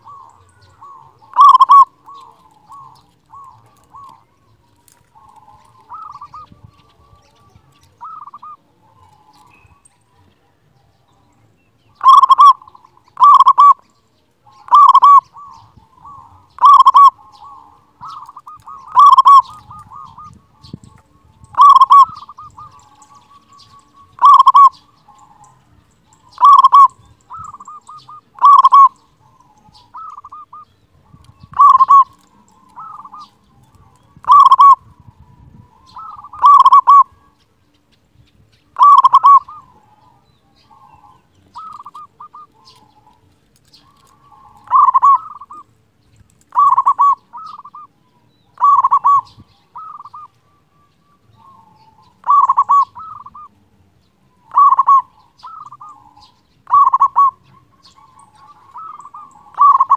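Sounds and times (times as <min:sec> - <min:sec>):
dove cooing: 0:00.0 - 0:10.9, 0:11.9 - 0:37.4, 0:38.8 - 0:45.8, 0:46.4 - 0:59.9.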